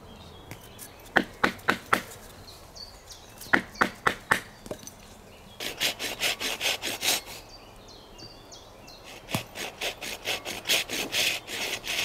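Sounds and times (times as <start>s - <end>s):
hand saw cutting wood: 5.6s - 7.4s, 9.0s - 12.0s.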